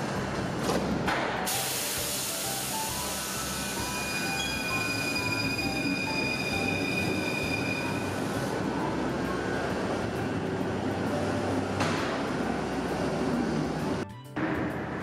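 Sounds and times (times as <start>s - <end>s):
train rumbling: 0.0s - 15.0s
train wheels squealing: 3.4s - 8.4s.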